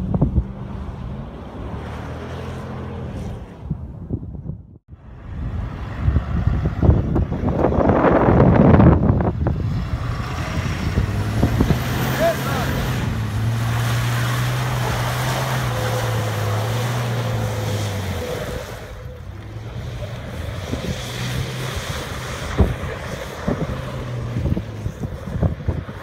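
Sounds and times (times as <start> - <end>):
wind buffeting microphone: 0.0 - 1.4, 3.2 - 26.0
truck engine droning: 4.9 - 26.0.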